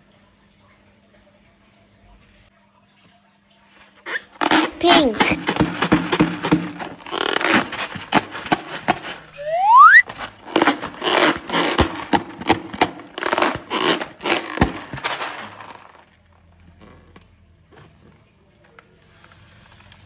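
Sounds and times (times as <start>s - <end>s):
loud rising squeak: 9.4s - 10.0s.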